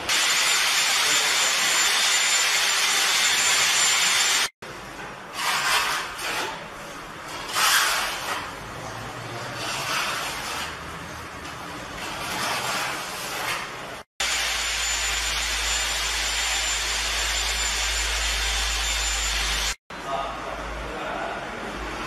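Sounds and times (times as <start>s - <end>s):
trowel scraping tile adhesive: 5.3s - 11.1s, 11.9s - 14.0s.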